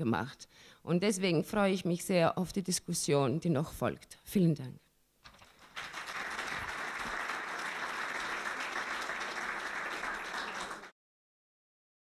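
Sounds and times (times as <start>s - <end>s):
audience applauding: 5.4s - 10.9s.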